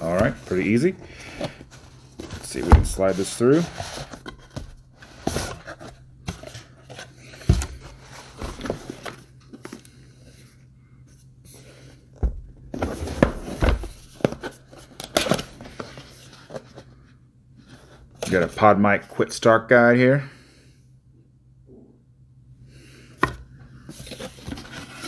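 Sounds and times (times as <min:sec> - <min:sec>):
packaging rustling: 0:00.0 - 0:09.9.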